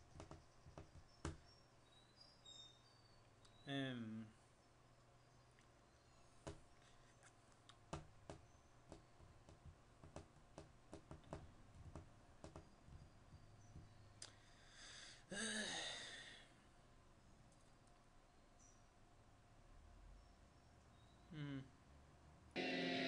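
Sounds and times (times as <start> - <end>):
person sighing: 14.7 - 16.6, 21.3 - 21.7.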